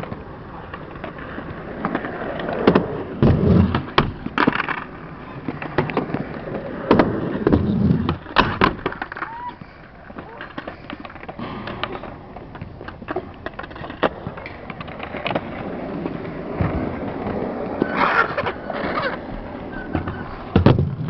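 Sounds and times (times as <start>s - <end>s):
skateboard clacks: 0.0s - 21.0s
skateboard wheels rolling on concrete: 0.0s - 21.0s.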